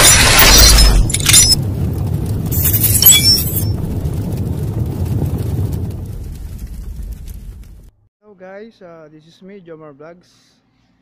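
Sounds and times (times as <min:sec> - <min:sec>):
low rumble: 0:00.0 - 0:08.0
deep boom: 0:00.3 - 0:07.9.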